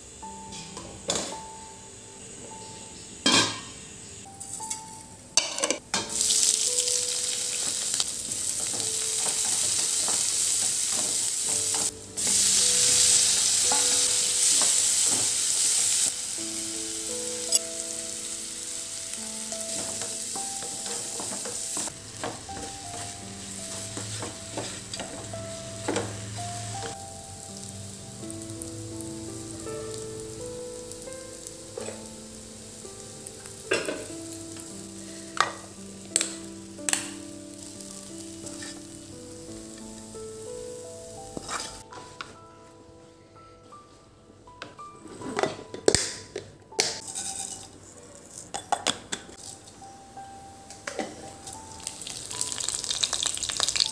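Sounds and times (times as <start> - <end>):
food sizzling in hot oil: 5.7 - 41.9, 49.4 - 53.9
wooden spatula tapping and scraping: 19.8 - 23.2, 23.8 - 26.1, 41.3 - 42.4.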